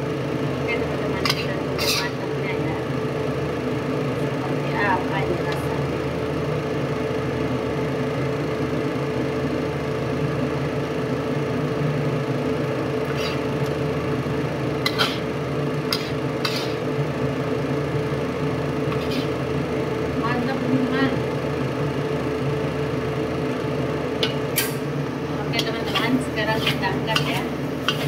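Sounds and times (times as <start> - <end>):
steady mechanical hum: 0.0 - 28.0
metal spatula scraping a wok: 1.2 - 2.1, 13.1 - 13.4, 15.9 - 16.8, 18.9 - 19.4, 25.6 - 28.0.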